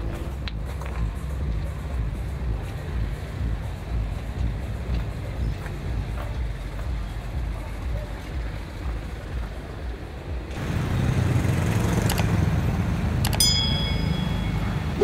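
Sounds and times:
low engine rumble: 0.0s - 15.0s
sharp clicks: 12.0s - 12.3s, 13.2s - 13.4s
short metallic ring: 13.4s - 15.0s.

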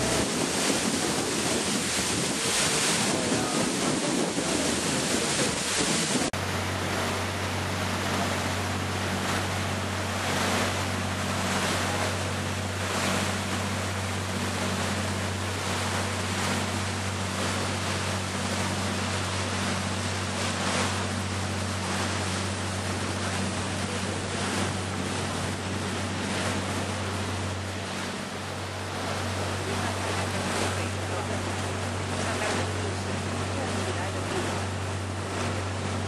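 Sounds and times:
wind on microphone: 0.0s - 33.8s
boat engine drone: 0.0s - 36.0s
water rushing past hull: 0.0s - 36.0s.

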